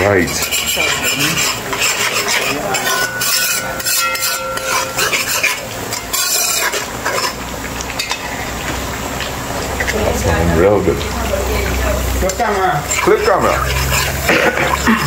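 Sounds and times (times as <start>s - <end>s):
metal spoon scraping a pot: 0.0s - 8.5s, 11.5s - 15.0s
curry sizzling: 0.0s - 15.0s.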